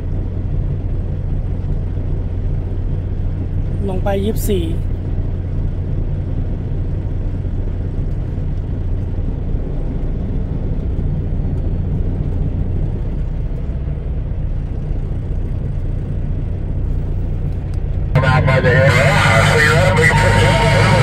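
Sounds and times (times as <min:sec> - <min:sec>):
truck diesel engine droning: 0:00.0 - 0:21.0
road noise hiss: 0:15.6 - 0:21.0.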